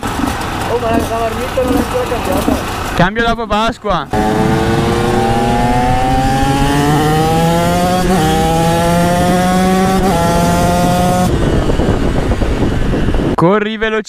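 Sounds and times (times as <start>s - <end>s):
two-stroke motorcycle engine accelerating: 0.0s - 3.0s, 4.1s - 13.4s
rushing noise: 4.1s - 13.4s.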